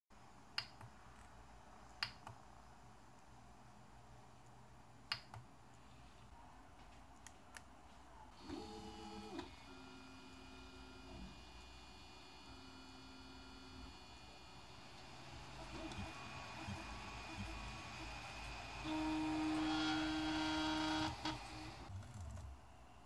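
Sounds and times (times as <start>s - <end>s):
stepper motors whirring: 8.4s - 22.5s.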